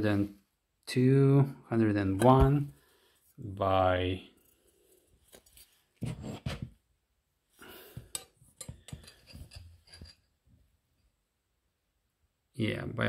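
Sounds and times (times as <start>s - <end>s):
metal tool scrape: 4.3s - 6.7s, 8.0s - 10.3s.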